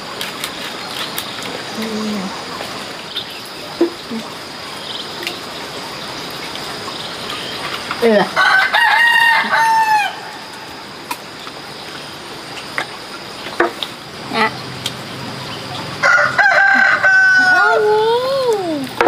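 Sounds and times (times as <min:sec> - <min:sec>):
rooster crowing: 0:08.4 - 0:10.5, 0:16.0 - 0:18.0.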